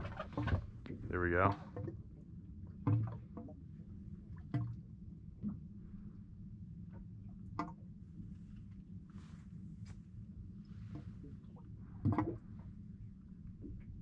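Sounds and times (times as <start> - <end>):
low steady hum: 0.0 - 14.0
water drips and slaps: 2.7 - 3.6, 4.3 - 4.8, 10.8 - 12.5.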